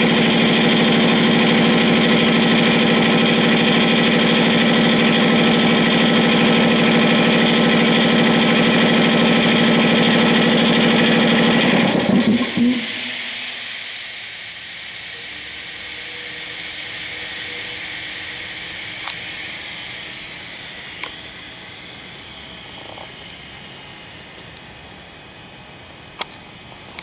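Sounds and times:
compressed air hissing: 0:12.2 - 0:25.3.

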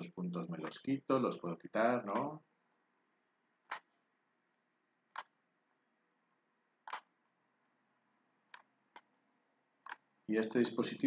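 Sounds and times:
faint computer mouse clicks: 0:06.8 - 0:07.1.

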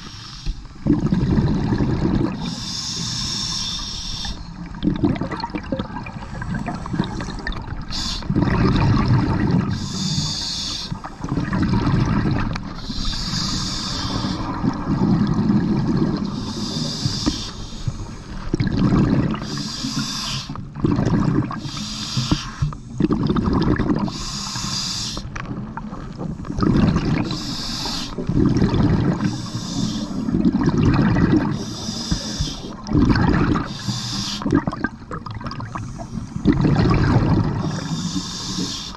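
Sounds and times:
diver breathing through regulator: 0:00.0 - 0:00.8, 0:02.3 - 0:04.6, 0:06.2 - 0:08.6, 0:09.6 - 0:11.5, 0:12.7 - 0:14.8, 0:16.2 - 0:18.4, 0:19.0 - 0:20.6, 0:21.5 - 0:23.3, 0:23.9 - 0:25.4, 0:26.1 - 0:30.5, 0:31.2 - 0:34.7, 0:35.6 - 0:38.9
gurgling exhaust bubbles: 0:00.8 - 0:02.6, 0:04.6 - 0:09.9, 0:11.0 - 0:17.4, 0:18.4 - 0:20.0, 0:20.7 - 0:21.7, 0:22.8 - 0:24.2, 0:25.3 - 0:33.8, 0:34.4 - 0:38.8.

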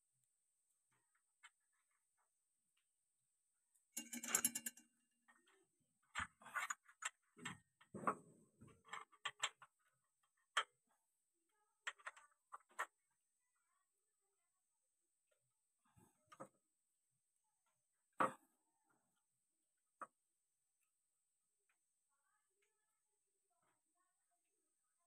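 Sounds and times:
metal parts clinking and knocking: 0:04.0 - 0:04.8.

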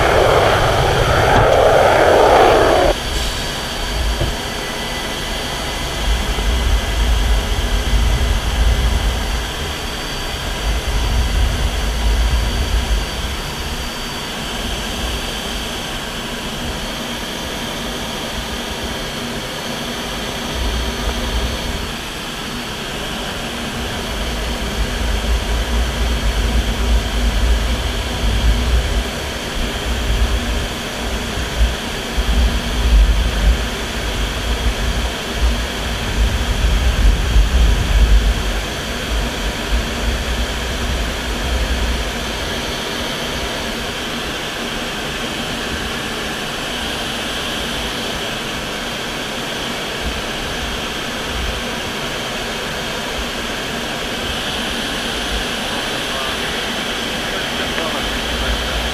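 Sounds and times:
rushing airflow hiss: 0:00.0 - 0:04.8
low wind buffeting: 0:00.0 - 0:04.9, 0:23.6 - 0:42.8
jet engines running: 0:00.0 - 0:58.9.

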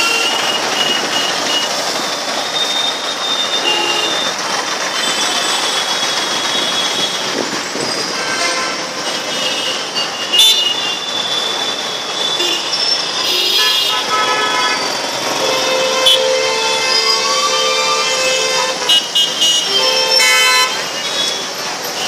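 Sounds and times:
road traffic noise: 0:00.0 - 0:22.0
vehicle horns tooting: 0:03.5 - 0:04.3, 0:08.1 - 0:11.5, 0:12.2 - 0:22.0.

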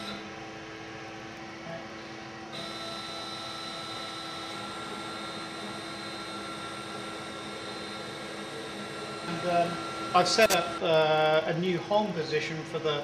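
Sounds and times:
stepper motors whining: 0:00.0 - 0:00.3, 0:02.5 - 0:11.1.

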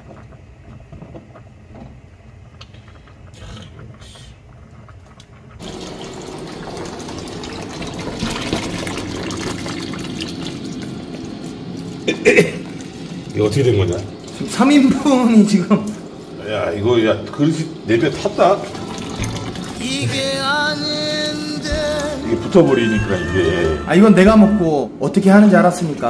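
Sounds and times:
kitchen tap running: 0:05.6 - 0:24.4.

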